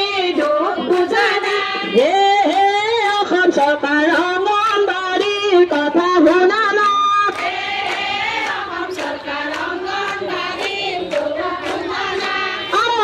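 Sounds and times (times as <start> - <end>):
women singing in unison: 0.0 - 13.0.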